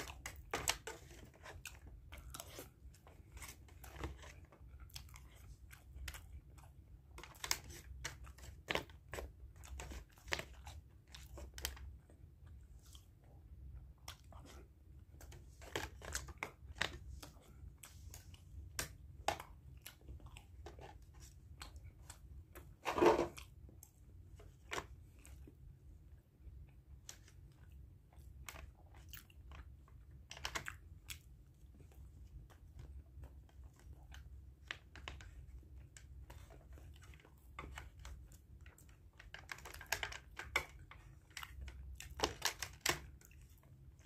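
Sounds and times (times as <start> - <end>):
person chewing and crunching: 0.0 - 25.7, 26.6 - 44.0.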